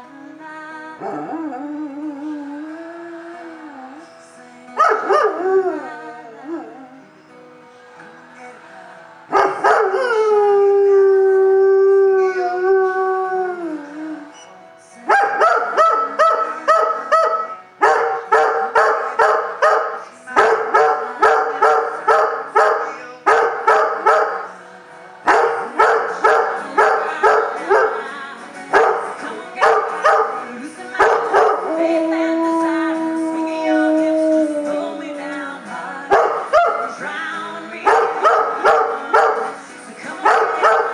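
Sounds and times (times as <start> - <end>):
dog howling: 31.1 - 35.4
dog yipping howls: 31.2 - 35.2.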